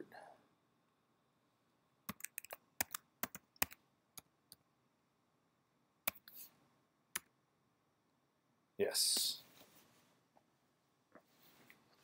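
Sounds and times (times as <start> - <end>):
computer keyboard keystrokes: 2.1 - 4.3.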